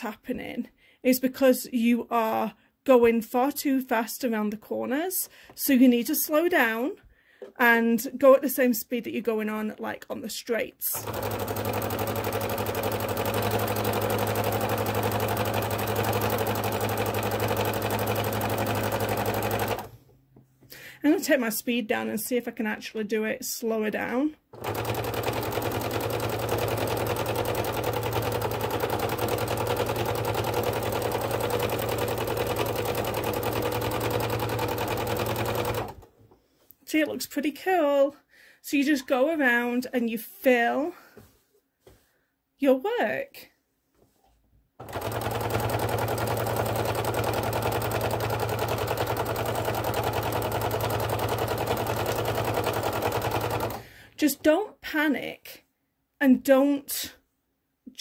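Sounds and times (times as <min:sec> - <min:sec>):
sewing machine stitching: 0:10.9 - 0:20.1, 0:24.5 - 0:36.1, 0:44.8 - 0:53.9.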